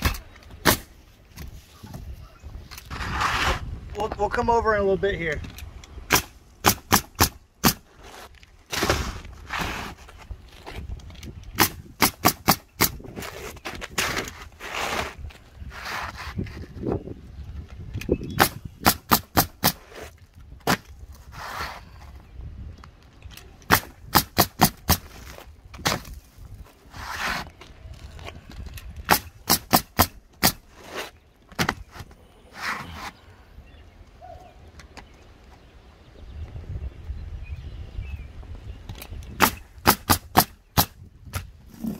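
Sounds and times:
scraping sounds: 1.4 - 3.9, 7.9 - 10.9, 13.1 - 17.0, 21.1 - 22.2, 26.1 - 29.0, 30.6 - 33.3
nail gun firing: 6.1 - 7.8, 11.6 - 13.0, 18.4 - 19.8, 23.7 - 25.1, 29.1 - 30.6, 39.4 - 41.0.

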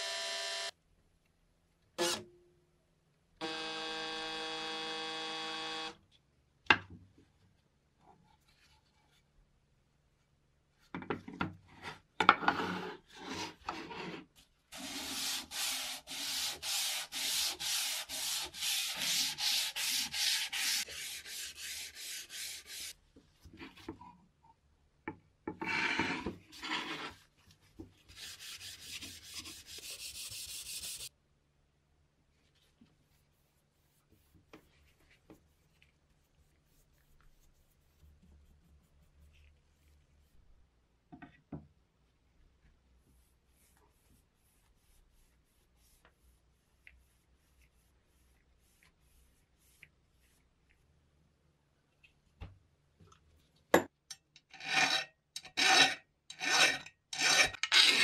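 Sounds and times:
sandpaper on wooden board: 14.7 - 23.0, 28.1 - 31.1.

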